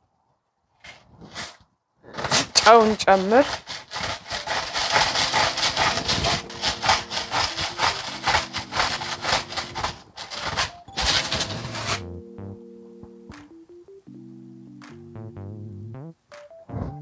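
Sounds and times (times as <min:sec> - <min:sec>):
salt grinder crunching: 0:02.2 - 0:12.0.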